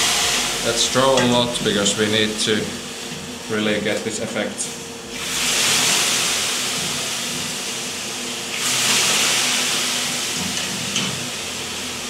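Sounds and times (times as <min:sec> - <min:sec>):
water hissing on hot stones: 0:00.0 - 0:03.0, 0:05.1 - 0:12.0.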